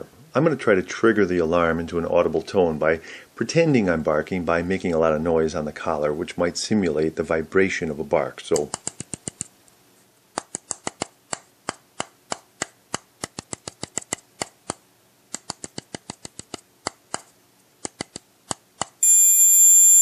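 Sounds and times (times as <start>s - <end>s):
high-pitched beep: 19.0s - 20.0s.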